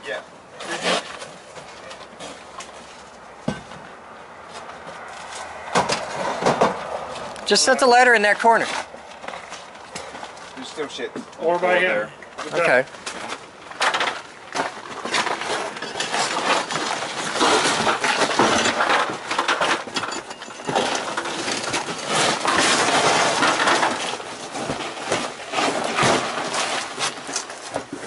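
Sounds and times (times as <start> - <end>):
shovel scraping roofing: 0.6 - 3.1, 4.5 - 7.4, 12.5 - 28.0.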